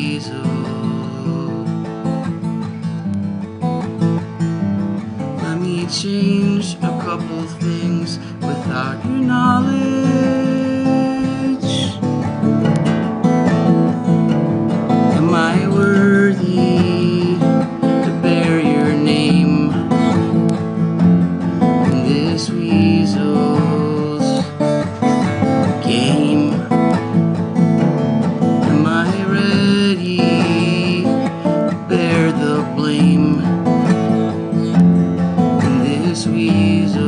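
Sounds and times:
man singing: 0:00.0 - 0:03.1, 0:05.0 - 0:12.4, 0:14.7 - 0:20.8, 0:21.5 - 0:27.4, 0:28.0 - 0:37.0
acoustic guitar strumming: 0:00.0 - 0:37.0.

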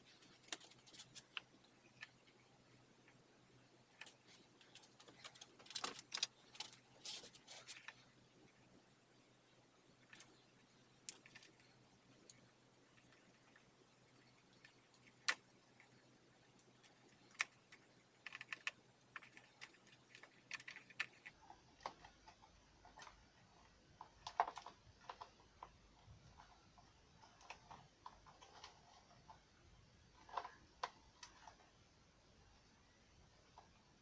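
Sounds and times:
plastic connectors clicking and rattling: 0:03.9 - 0:08.0.

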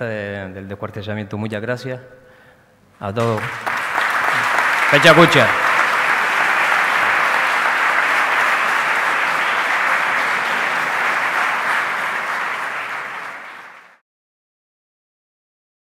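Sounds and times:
audience applauding: 0:03.2 - 0:14.0.

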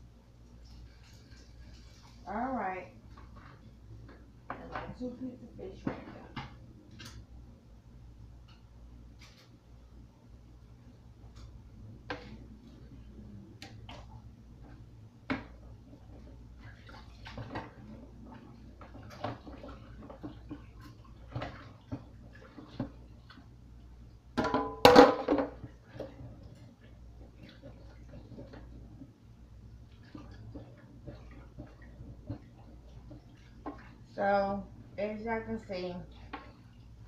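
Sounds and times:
dishes clinking in metal sink: 0:24.4 - 0:25.6.

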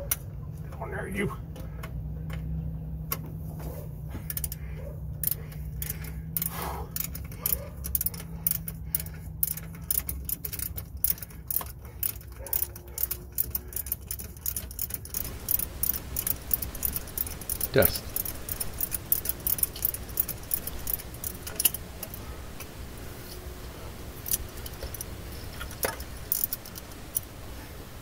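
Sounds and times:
metallic clicks of tools: 0:04.2 - 0:22.8, 0:24.2 - 0:27.4
low hum: 0:15.0 - 0:28.0.

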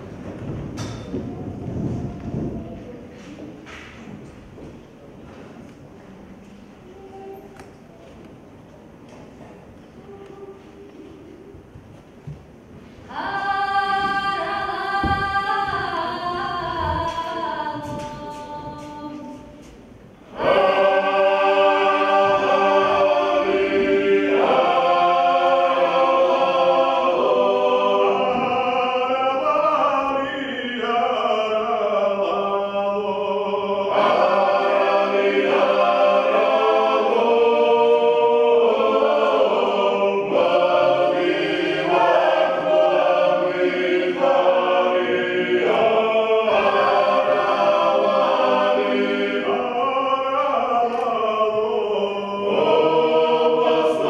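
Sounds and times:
choir singing in parts: 0:12.6 - 0:54.0.

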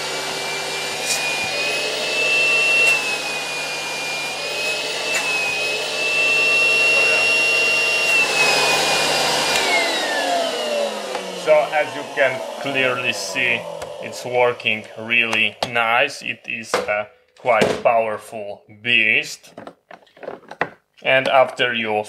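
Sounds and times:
vacuum cleaner motor whine: 0:00.0 - 0:16.0.

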